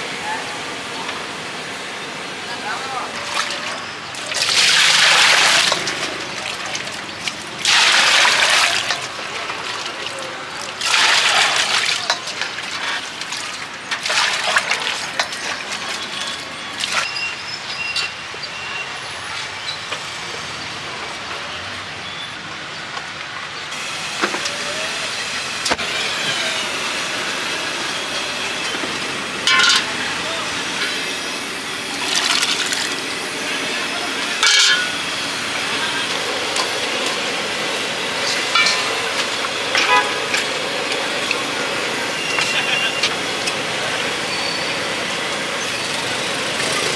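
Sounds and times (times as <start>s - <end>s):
wok sizzling and hissing: 3.5s - 10.0s, 23.7s - 46.9s
metal spatula clanking on wok: 29.5s - 30.0s, 34.4s - 35.0s, 38.5s - 39.1s.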